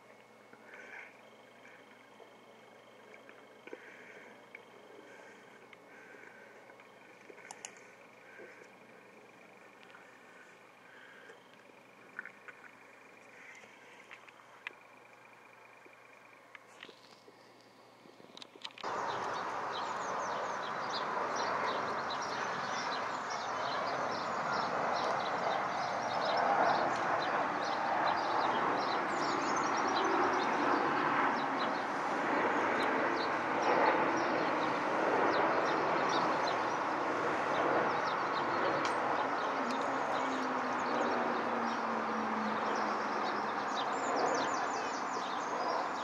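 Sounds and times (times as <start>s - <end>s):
distant jet engine roar: 0.0s - 16.4s, 17.2s - 46.0s
birds chirping: 0.6s - 46.0s.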